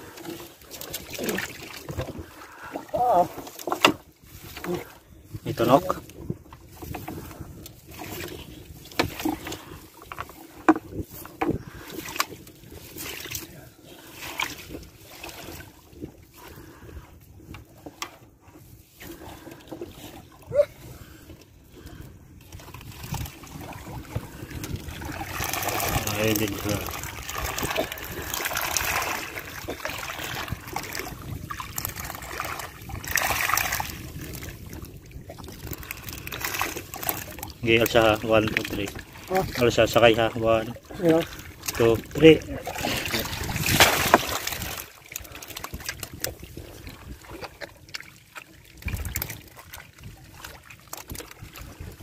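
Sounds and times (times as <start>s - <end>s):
knocks and clatter in boat: 0.0s - 52.0s
water splashing and sloshing: 0.0s - 52.0s.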